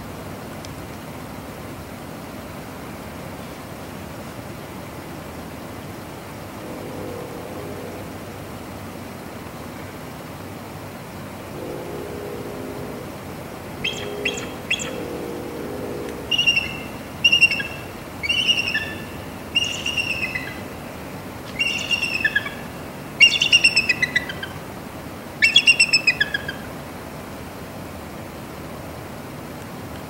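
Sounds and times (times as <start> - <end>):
eagle calling: 12.0 - 20.7, 21.5 - 24.6, 25.4 - 26.6.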